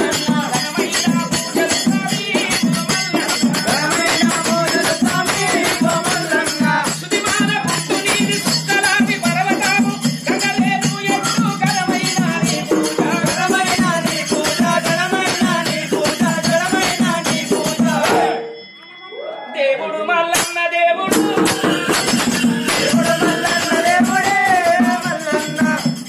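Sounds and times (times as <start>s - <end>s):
rattling and jingling percussion: 0.0s - 19.2s, 20.4s - 26.0s
person singing: 19.2s - 25.9s.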